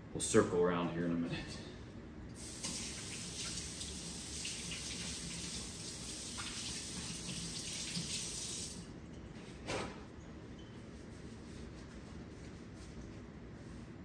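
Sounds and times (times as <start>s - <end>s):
kitchen tap running: 2.4s - 8.8s.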